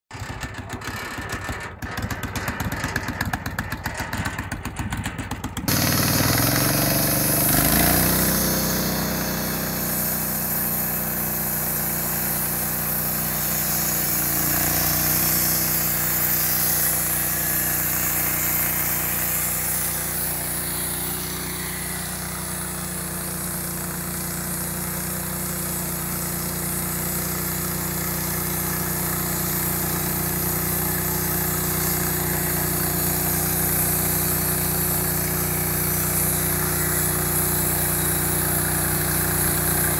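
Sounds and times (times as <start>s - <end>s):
petrol engine revving: 5.6s - 23.2s
saw blade cutting board: 5.7s - 39.9s.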